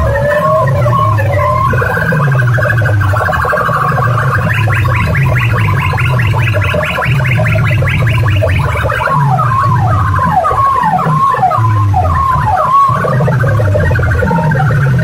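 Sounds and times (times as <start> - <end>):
heavy bass: 0.0 - 15.0
loud music from loudspeakers: 0.0 - 15.0.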